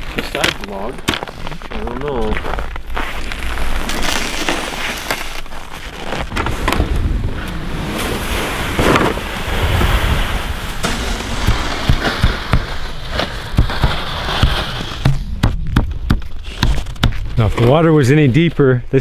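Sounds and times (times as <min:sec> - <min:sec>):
wind rumbling on microphone: 0:06.2 - 0:18.0.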